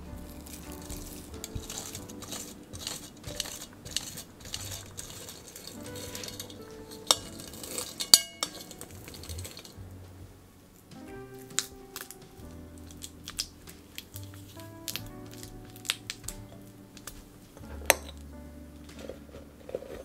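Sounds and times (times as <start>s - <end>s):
soft background music: 0.0s - 20.0s
spatula scraping through a sieve: 0.4s - 9.8s.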